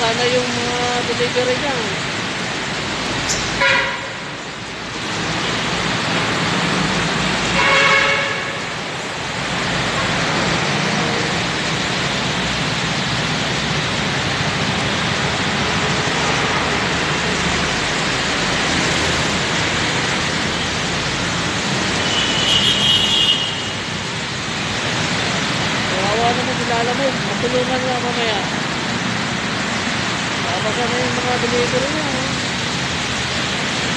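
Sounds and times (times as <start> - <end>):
heavy rain: 0.0 - 33.9
traffic on wet road: 0.0 - 33.9
vehicle horn: 3.6 - 4.2, 7.6 - 8.7, 22.0 - 23.8.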